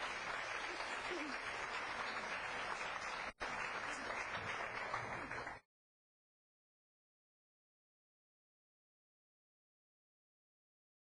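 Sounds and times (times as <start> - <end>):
audience applauding: 0.0 - 5.6.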